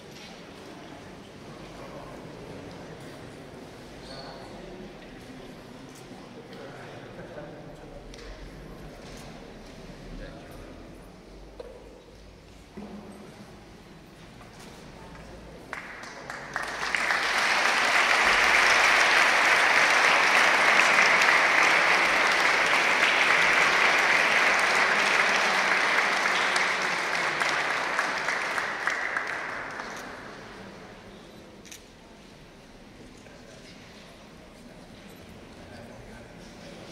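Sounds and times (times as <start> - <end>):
congregation applauding: 15.7 - 30.6.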